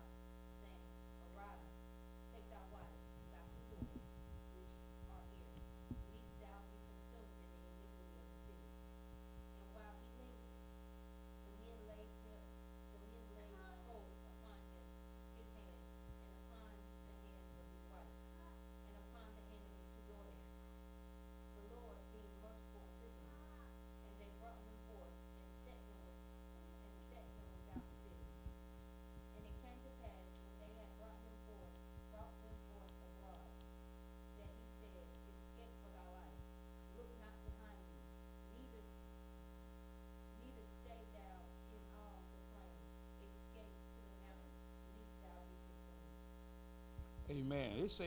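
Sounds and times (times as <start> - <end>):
woman reading aloud: 0.0 - 1.7, 2.3 - 5.5, 6.1 - 8.7, 9.6 - 10.4, 11.5 - 20.5, 21.6 - 26.2, 26.8 - 28.2, 29.4 - 33.5, 34.4 - 37.9, 38.6 - 39.0, 40.4 - 45.8
electrical mains hum: 0.0 - 48.0
soft thump: 3.7 - 4.2.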